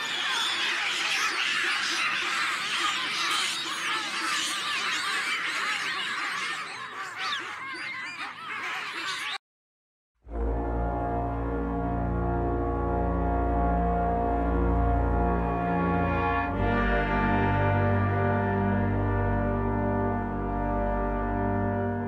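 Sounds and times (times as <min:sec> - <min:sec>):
baboons screaming and barking: 0:00.0 - 0:09.4.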